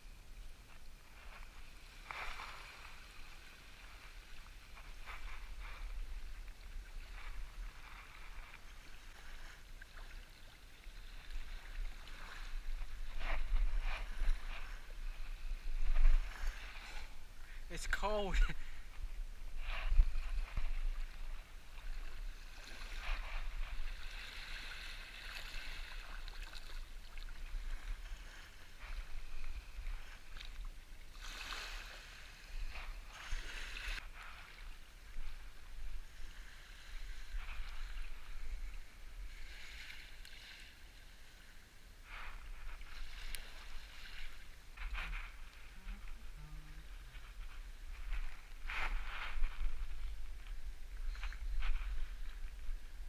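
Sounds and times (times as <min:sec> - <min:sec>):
wind rumble on microphone: 0:00.0 - 0:17.8, 0:18.4 - 0:31.2, 0:31.9 - 0:40.2, 0:42.0 - 0:53.0
seawater washing and splashing: 0:01.2 - 0:40.6.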